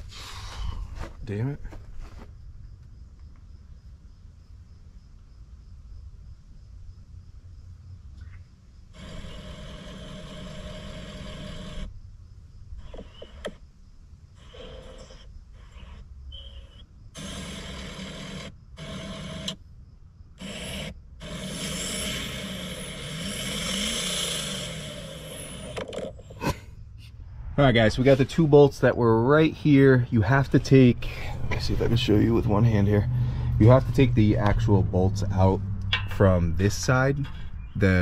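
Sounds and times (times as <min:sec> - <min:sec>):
engine hiss: 0:00.0 - 0:01.1, 0:08.9 - 0:11.9, 0:20.4 - 0:26.6
diesel engine idling: 0:08.9 - 0:11.9, 0:26.3 - 0:38.0.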